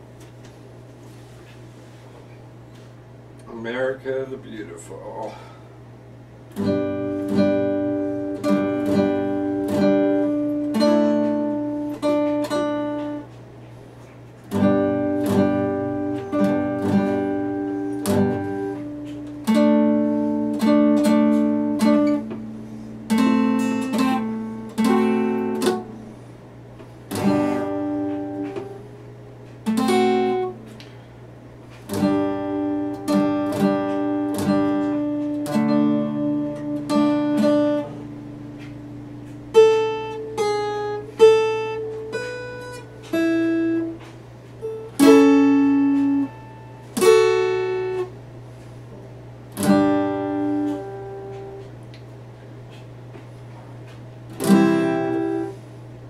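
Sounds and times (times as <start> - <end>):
acoustic guitar chords ringing: 3.2 - 56.0
picked guitar notes: 6.3 - 56.0.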